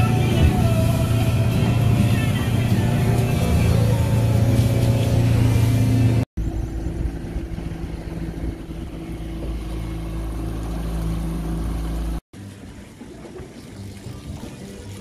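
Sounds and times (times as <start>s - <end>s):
outboard motor droning: 0.0s - 15.0s.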